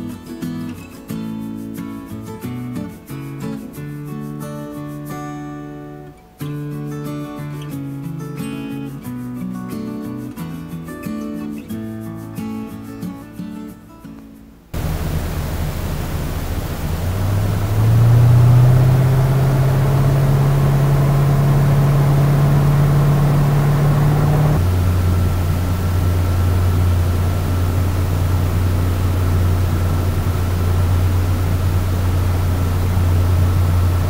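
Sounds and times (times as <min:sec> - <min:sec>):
boat engine droning: 0:14.8 - 0:34.0.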